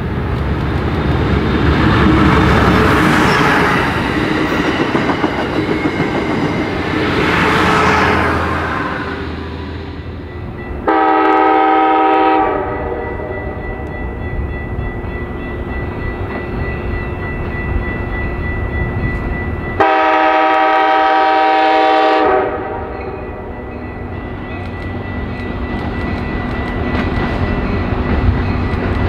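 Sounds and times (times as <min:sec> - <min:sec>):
train rumble: 0:00.0 - 0:29.0
train horn blasts: 0:10.8 - 0:13.7, 0:19.8 - 0:23.2.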